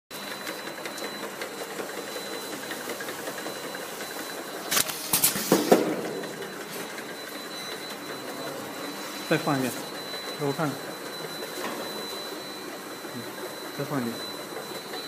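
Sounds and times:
labeling machine clatter: 0.4 - 8.2.

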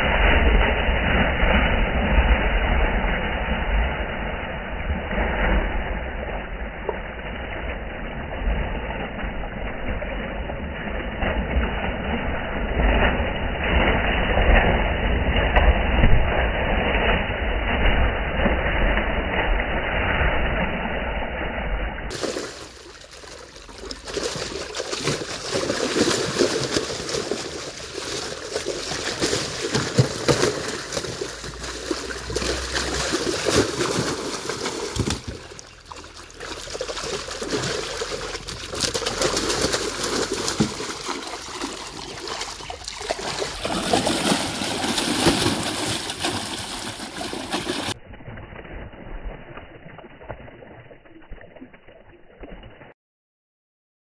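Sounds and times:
fish splashing in water: 4.6 - 21.4, 22.1 - 52.9.

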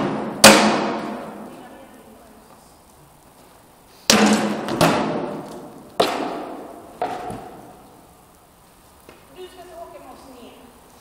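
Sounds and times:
swords striking wooden shields: 0.0 - 1.4, 4.1 - 7.5.

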